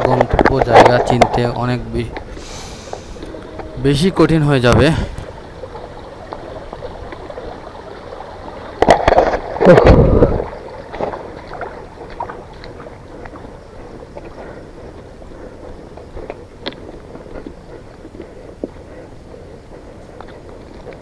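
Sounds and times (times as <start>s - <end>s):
running water: 0.0s - 16.0s
feet wading and splashing: 2.3s - 21.0s.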